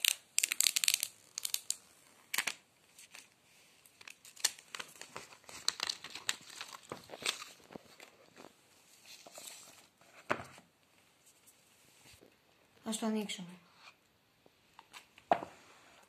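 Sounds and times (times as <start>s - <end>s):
plastic film crinkling: 0.0s - 9.7s.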